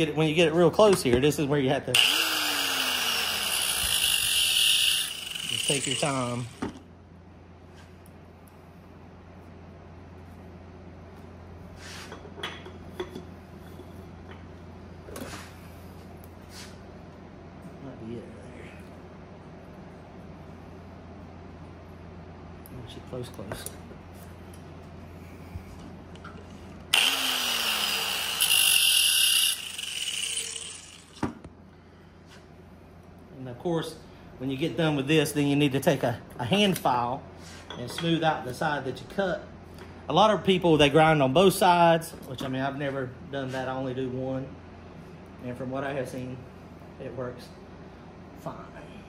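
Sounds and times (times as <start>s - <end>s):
steady low hum: 0.0s - 49.0s
angle grinder grinding metal: 1.9s - 6.6s, 26.9s - 31.2s.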